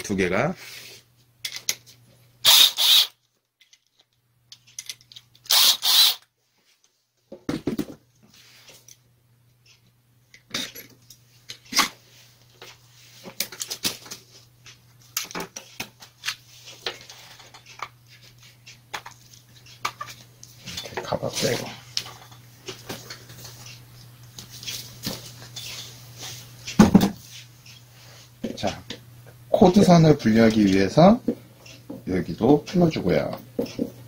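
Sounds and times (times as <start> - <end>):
knock: 7.4 - 8.0, 26.8 - 27.2.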